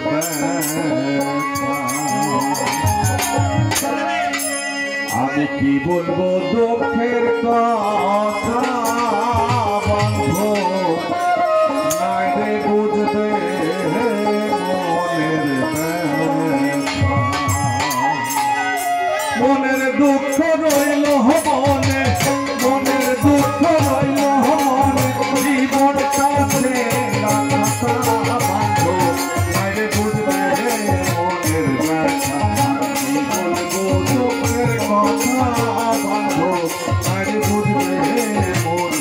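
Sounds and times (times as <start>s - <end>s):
hand percussion beat: 0.0s - 6.1s, 7.9s - 39.0s
folk melody: 0.0s - 39.0s.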